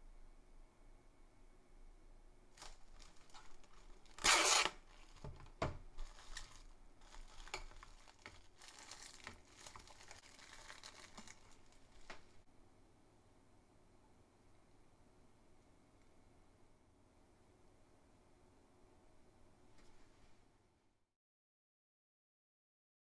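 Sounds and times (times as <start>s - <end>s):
plastic film crinkling: 2.5s - 12.4s
cling film tearing: 2.6s - 12.2s.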